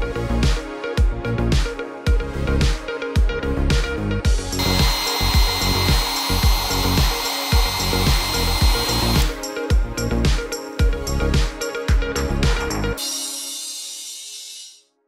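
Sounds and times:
electronic music with steady beat: 0.4s - 14.8s
heat gun blowing with fan whine: 4.6s - 9.3s.

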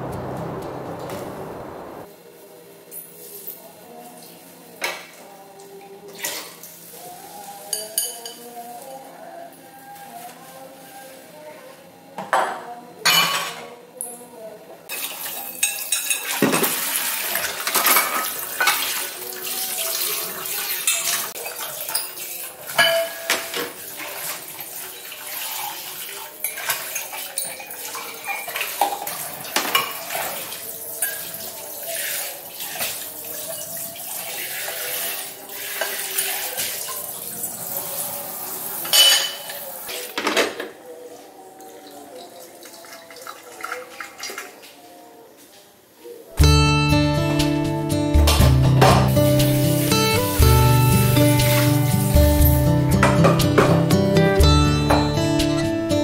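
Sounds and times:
dishes clinking in sink: 12.2s - 14.2s, 14.9s - 19.0s, 20.6s - 24.4s, 26.4s - 31.6s, 38.8s - 40.8s.

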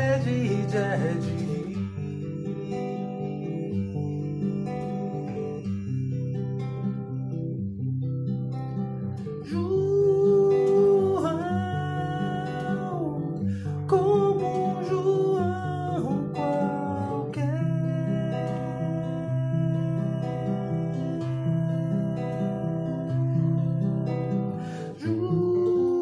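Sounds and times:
person humming wordless melody: 0.0s - 7.6s, 9.5s - 13.2s
fingerstyle classical guitar: 0.0s - 26.0s.

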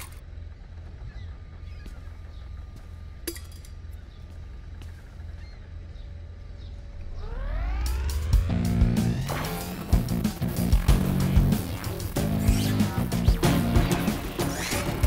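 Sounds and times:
low outdoor rumble: 0.0s - 14.3s
faint bird chirps: 3.8s - 8.0s
rising sweep of tones: 6.9s - 11.2s.

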